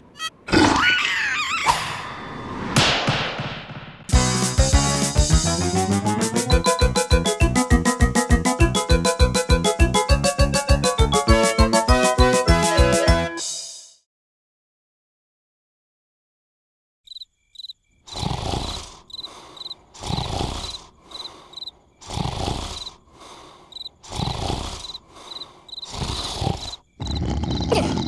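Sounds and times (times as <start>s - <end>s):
crickets chirping: 17.1s - 27.7s
cartoon snoring: 18.1s - 28.0s.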